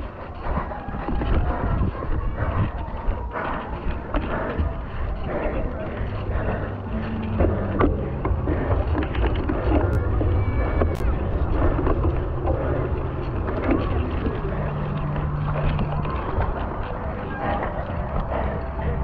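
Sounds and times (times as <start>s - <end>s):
tyres rolling through mud: 0.0s - 19.0s
wind buffeting microphone: 0.0s - 19.0s
bike crackling and rattling: 3.3s - 18.5s.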